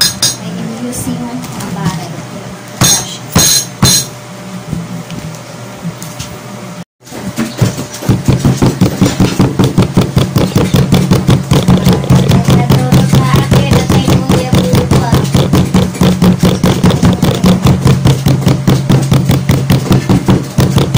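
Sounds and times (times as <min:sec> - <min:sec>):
steady low hum: 0:00.0 - 0:20.9
glass pounding cookies in plastic bag: 0:07.5 - 0:20.9.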